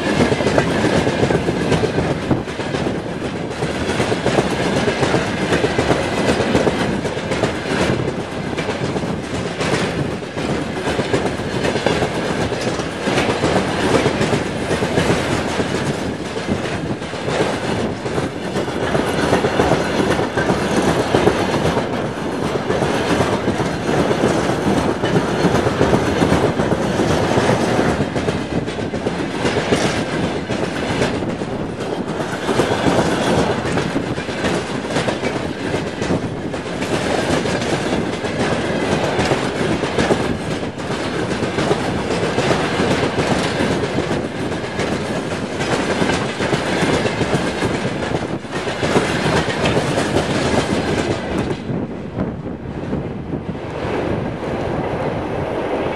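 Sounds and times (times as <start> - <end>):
wheels clattering on rails: 0.0 - 51.9
train rumbling: 0.0 - 55.9.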